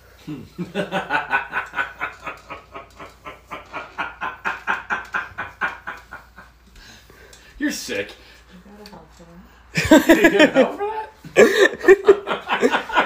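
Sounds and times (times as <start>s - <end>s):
man laughing hard: 0.3s - 6.5s, 9.8s - 13.0s.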